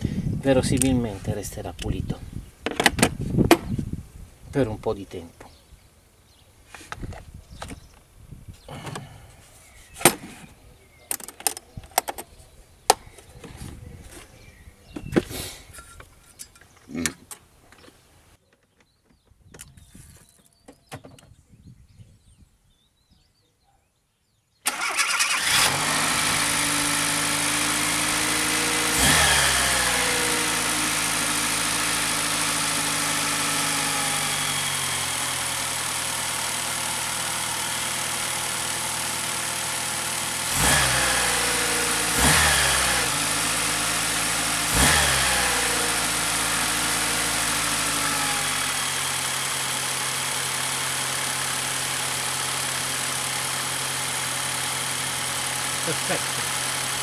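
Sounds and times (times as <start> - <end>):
car engine starting and revving: 24.7 - 57.0.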